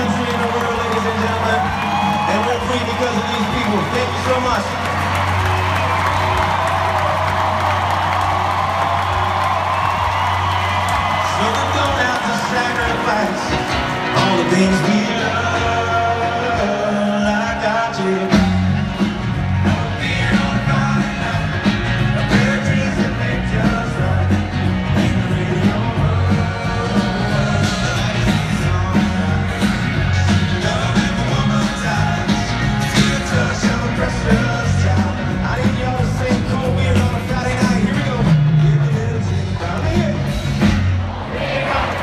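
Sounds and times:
live country band playing: 0:00.0 - 0:42.0
lead vocal singing: 0:11.0 - 0:18.7, 0:19.5 - 0:40.4, 0:41.0 - 0:42.0.

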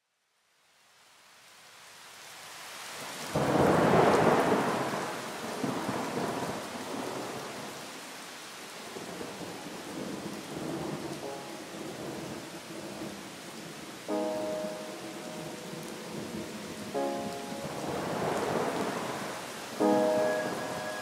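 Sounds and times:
steady rain: 0:00.0 - 0:21.0
thunder clap rumbling: 0:17.1 - 0:21.0.

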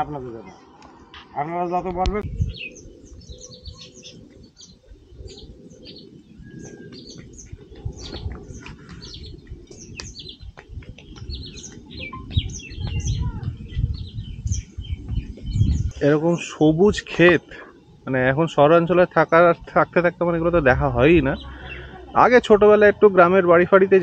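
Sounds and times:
small birds chirping: 0:00.0 - 0:24.0
low rumble: 0:19.6 - 0:23.1.

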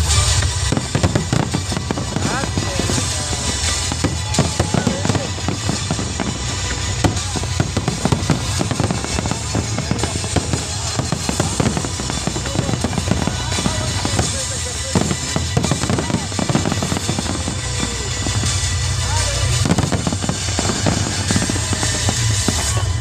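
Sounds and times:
fireworks bangs and crackling: 0:00.0 - 0:23.0
music playing: 0:00.0 - 0:23.0.

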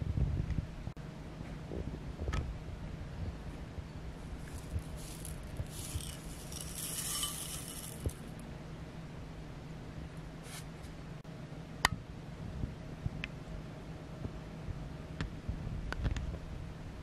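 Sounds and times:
low steady hum: 0:00.0 - 0:17.0
granola rattling into bowl: 0:04.3 - 0:08.3.

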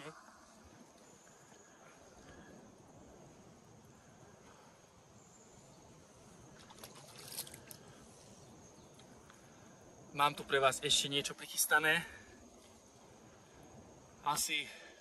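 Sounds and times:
small water splashes: 0:06.5 - 0:07.9.

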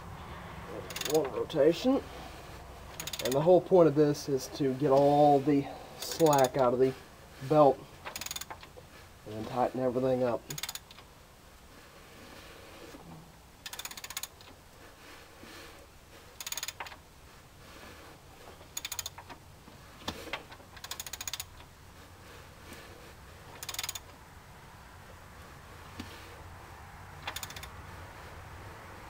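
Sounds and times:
ratchet wrench clicking: 0:00.9 - 0:01.2, 0:02.9 - 0:03.4, 0:06.0 - 0:06.6, 0:08.0 - 0:08.7, 0:10.5 - 0:11.0, 0:13.6 - 0:14.5, 0:16.4 - 0:17.0, 0:18.7 - 0:19.3, 0:20.8 - 0:21.7, 0:23.6 - 0:24.1, 0:27.2 - 0:27.8.

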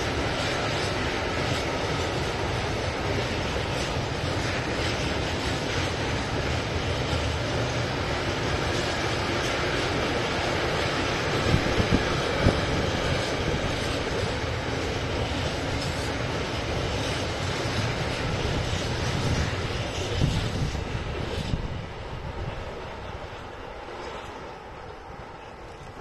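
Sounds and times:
train wheels rumbling on rail: 0:00.0 - 0:26.0.

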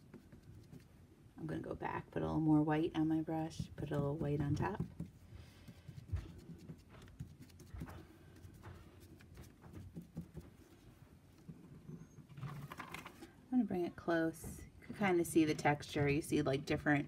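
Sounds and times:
sponge brush tapping paint: 0:00.0 - 0:01.0, 0:03.3 - 0:12.1.

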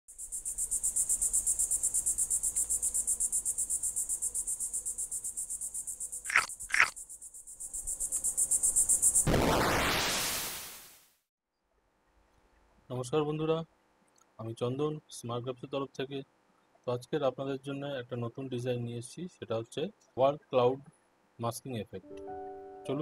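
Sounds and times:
pulsing insect trill: 0:00.1 - 0:09.3.

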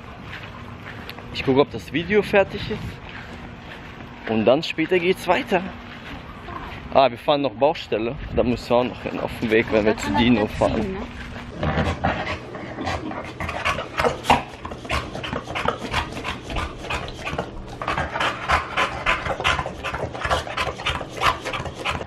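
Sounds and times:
dog panting fast: 0:09.0 - 0:22.0.

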